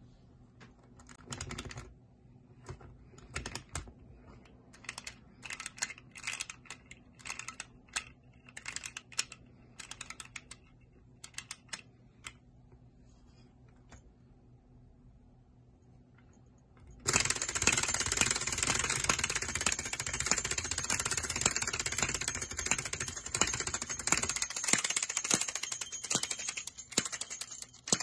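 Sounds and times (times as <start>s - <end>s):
wind-up key ratchet clicks: 4.7s - 12.4s.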